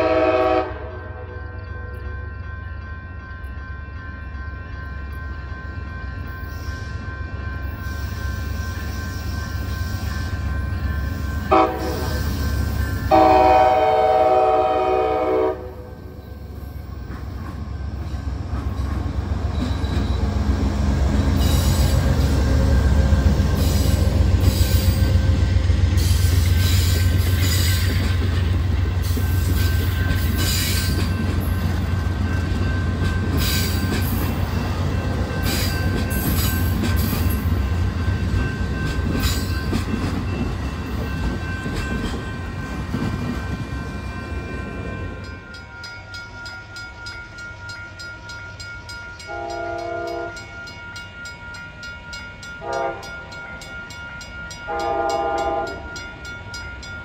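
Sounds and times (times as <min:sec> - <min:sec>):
train horn blasts: 0:00.0 - 0:01.5, 0:11.5 - 0:12.2, 0:13.1 - 0:16.2, 0:49.2 - 0:50.5, 0:52.6 - 0:53.2, 0:54.7 - 0:55.9
train rumbling past: 0:00.0 - 0:57.0.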